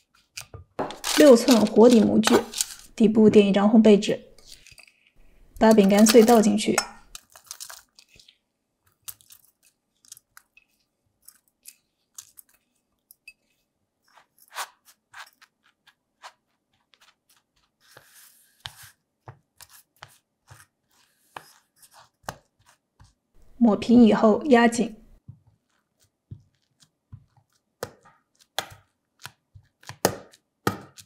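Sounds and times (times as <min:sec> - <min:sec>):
scraping crumbs rustling: 0:00.1 - 0:03.0, 0:04.4 - 0:19.0, 0:25.4 - 0:28.6.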